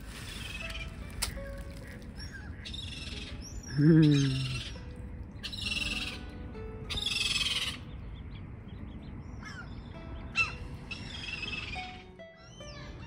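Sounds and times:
small birds chirping: 0:00.1 - 0:13.0
gulls calling: 0:00.3 - 0:08.2.

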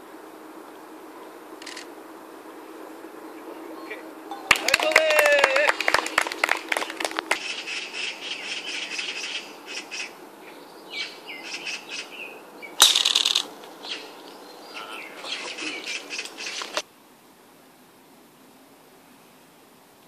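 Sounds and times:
birds chirping: 0:00.0 - 0:16.8
people clapping: 0:04.3 - 0:07.4
golf club striking ball: 0:12.8 - 0:13.5.

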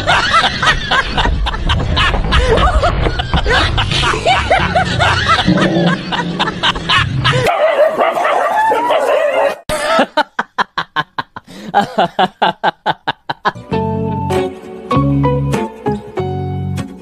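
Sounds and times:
snickering laughter: 0:00.0 - 0:07.5, 0:09.7 - 0:13.6
dog barking: 0:07.4 - 0:09.6
music: 0:13.5 - 0:17.0.

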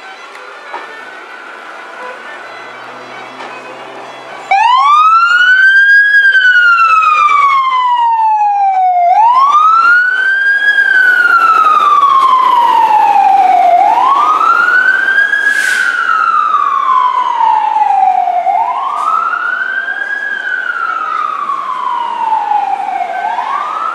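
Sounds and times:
emergency siren wailing: 0:00.0 - 0:23.9
brief hiss: 0:15.4 - 0:16.0.

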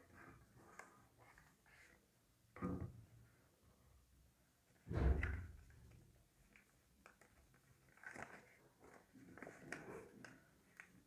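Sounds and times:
paper rustling and crinkling: 0:06.4 - 0:11.0.

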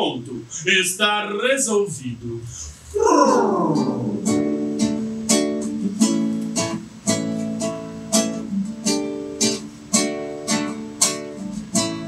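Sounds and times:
acoustic guitar strumming: 0:02.7 - 0:12.0.

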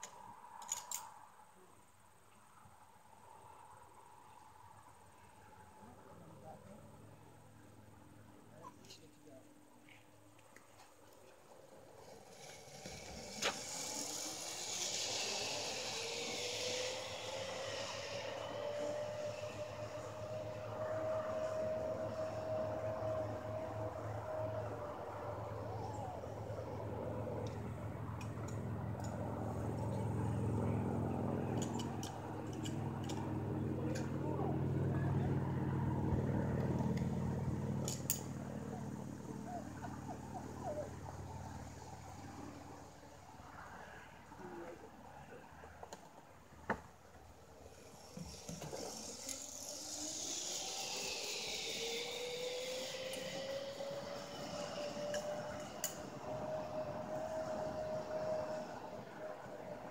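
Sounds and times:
zip line trolley humming: 0:10.1 - 0:44.8, 0:47.0 - 0:59.9.

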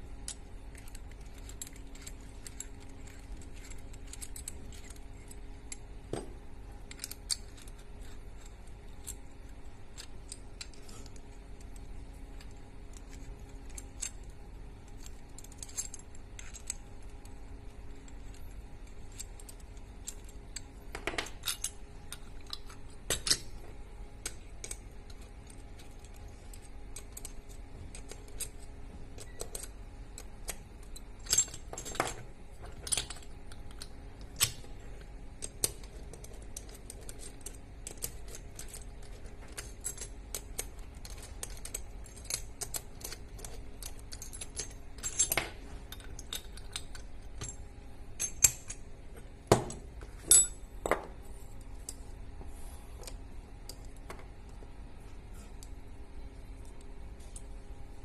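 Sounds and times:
faint steady hum: 0:00.0 - 0:58.0
metal tools clinking: 0:50.2 - 0:51.0.

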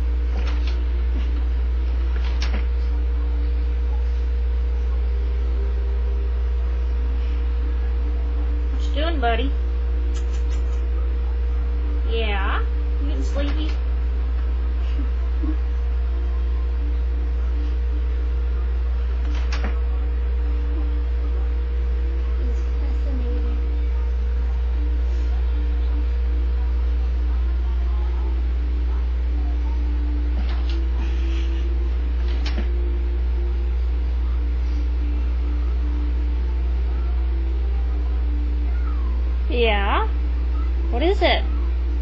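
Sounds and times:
steady low hum: 0:00.0 - 0:42.0
faint wavering tone: 0:02.8 - 0:08.7, 0:19.8 - 0:39.5, 0:40.1 - 0:42.0
sharp click: 0:10.1 - 0:10.8.

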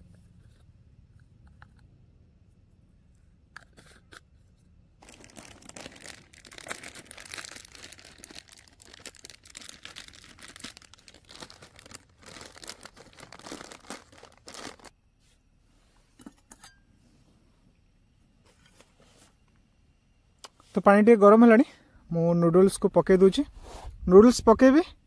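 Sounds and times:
plastic packet crinkling and tearing: 0:05.0 - 0:14.9.

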